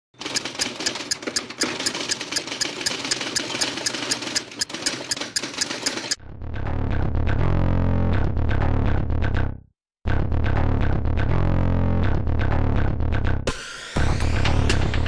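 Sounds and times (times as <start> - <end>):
film projector clattering: 0.1 - 6.2.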